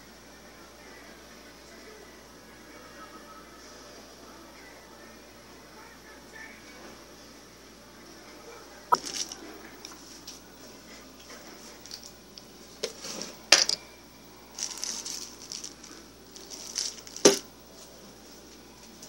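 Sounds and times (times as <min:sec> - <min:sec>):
small hard objects clinking: 0:08.9 - 0:09.4, 0:14.6 - 0:17.4.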